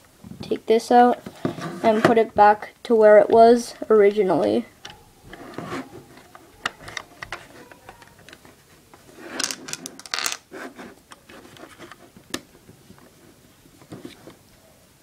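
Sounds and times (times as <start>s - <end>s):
plastic bricks clicking and rattling: 9.3s - 10.4s.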